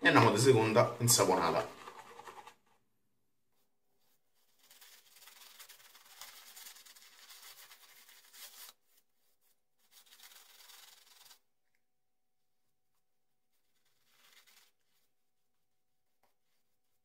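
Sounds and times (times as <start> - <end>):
shaving brush rubbing: 1.2 - 2.6, 4.4 - 8.8.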